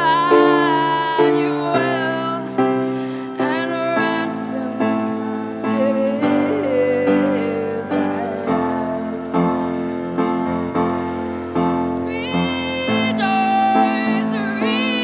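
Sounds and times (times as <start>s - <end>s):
piano accompaniment: 0.0s - 15.0s.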